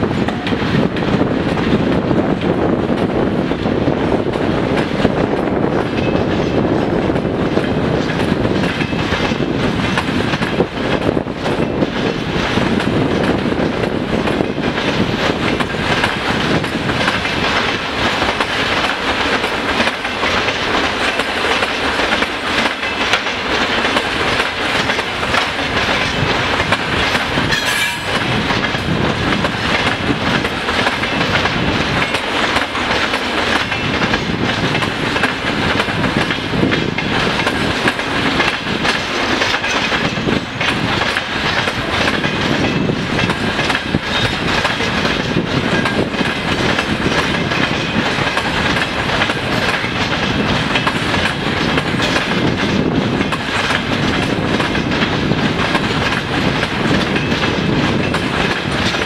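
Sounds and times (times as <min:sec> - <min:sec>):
freight train wheels clattering: 0:00.0 - 0:59.0.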